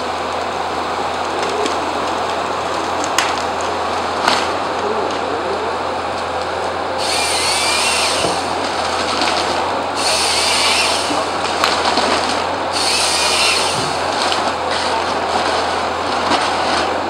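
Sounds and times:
diesel engine and hydraulics: 0:00.0 - 0:17.0
high-pitched chainsaw bursts: 0:07.0 - 0:08.6, 0:10.0 - 0:11.4, 0:12.7 - 0:14.2.

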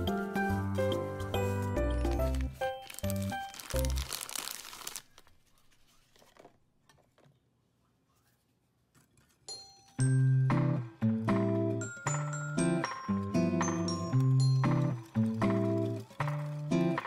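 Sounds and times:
background music: 0:00.0 - 0:04.7, 0:09.5 - 0:17.0
paper packet crinkling: 0:00.4 - 0:06.6, 0:13.9 - 0:17.0.

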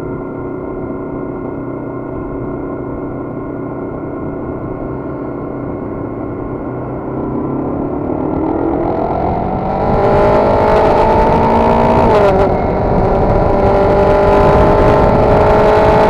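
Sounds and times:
motorcycle engine running: 0:00.0 - 0:16.0
wind rumbling on microphone: 0:05.7 - 0:16.0.

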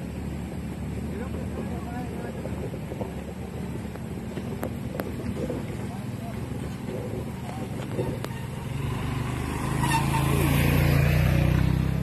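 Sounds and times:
motorcycle engine running: 0:00.0 - 0:09.4.

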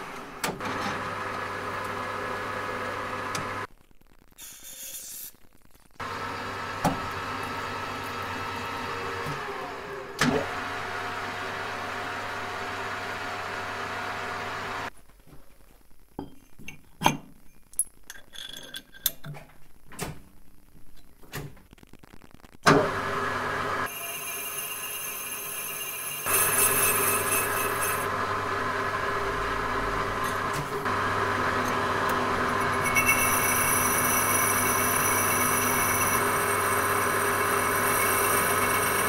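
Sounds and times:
metal lathe humming: 0:22.9 - 0:39.0.

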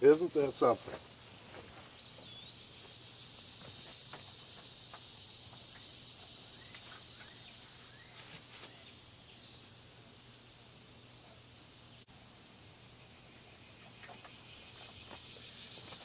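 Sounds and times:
bird chirps: 0:00.1 - 0:10.2.

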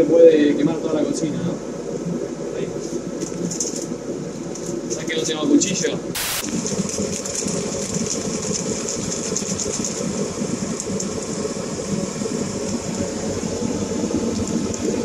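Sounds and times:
patties frying in a pan: 0:06.2 - 0:15.0
extractor hood fan whirring: 0:10.2 - 0:15.0.

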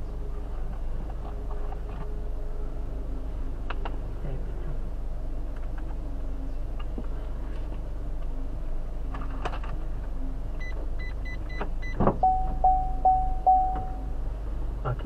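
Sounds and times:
car engine idling hum: 0:00.0 - 0:15.0
short high key beeps: 0:10.6 - 0:14.1
lower beeps: 0:10.6 - 0:14.2.

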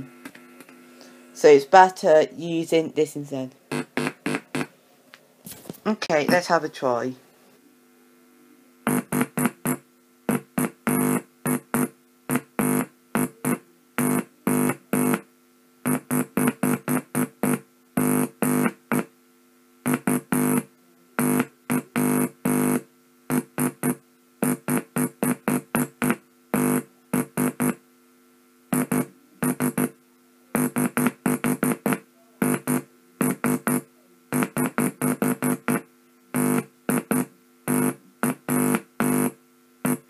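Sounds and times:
electronic morse code beeps: 0:03.7 - 0:04.7.

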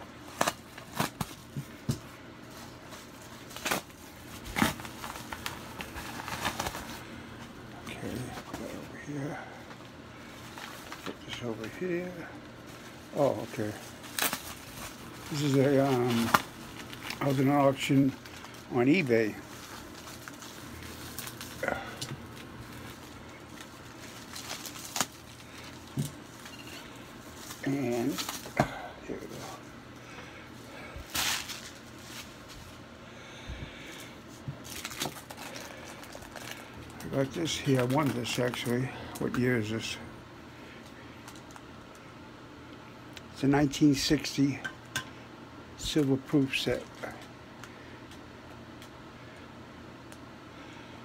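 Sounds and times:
paper crinkling and rustling: 0:00.2 - 0:29.7, 0:30.7 - 0:32.8, 0:33.8 - 0:40.0.

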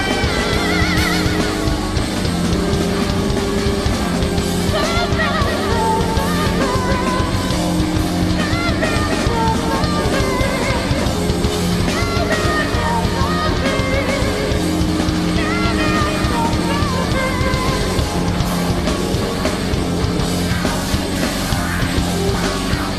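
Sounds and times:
electric guitar melody: 0:00.0 - 0:22.9
rock band playing heavy music: 0:00.0 - 0:22.9.

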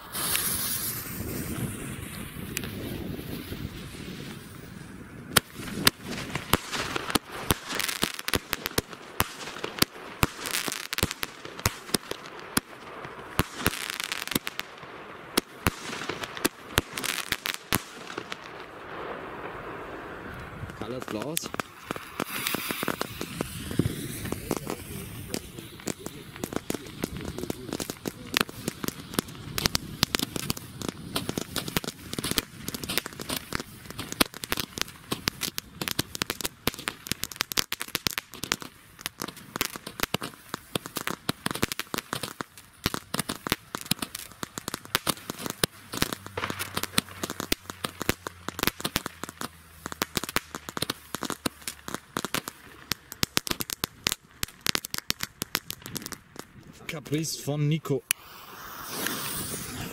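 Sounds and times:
fireworks bangs: 0:00.0 - 0:59.9
fireworks crackling and popping: 0:00.0 - 0:59.9.

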